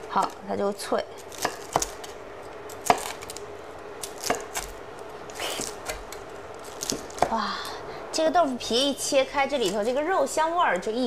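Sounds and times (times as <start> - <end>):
crisp fried wrapper crunching: 6.4 - 7.2.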